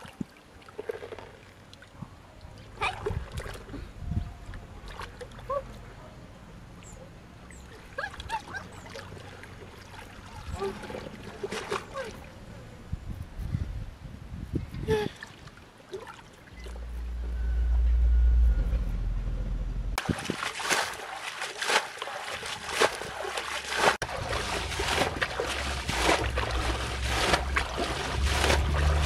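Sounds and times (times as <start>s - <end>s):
low rumble: 16.6s - 20.0s, 24.1s - 29.0s
hands splashing in water: 20.0s - 29.0s.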